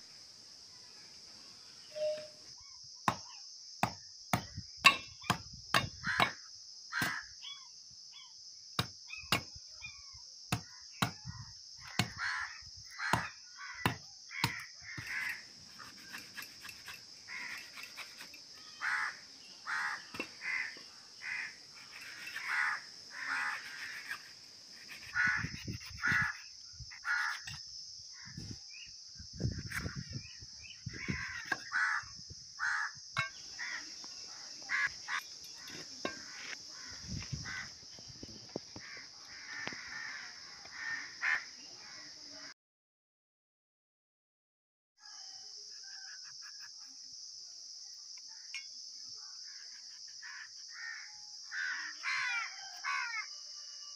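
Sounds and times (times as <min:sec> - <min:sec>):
billhook chopping fruit: 0:03.8 - 0:06.4, 0:08.8 - 0:09.5, 0:10.5 - 0:11.2, 0:11.9 - 0:12.2, 0:13.1 - 0:14.6
crows cawing: 0:06.0 - 0:07.3, 0:11.9 - 0:15.5, 0:17.3 - 0:17.8, 0:18.6 - 0:24.2, 0:25.0 - 0:26.4, 0:27.0 - 0:27.5, 0:31.0 - 0:33.0, 0:33.6 - 0:33.9, 0:34.7 - 0:37.7, 0:38.7 - 0:41.5, 0:50.2 - 0:53.3.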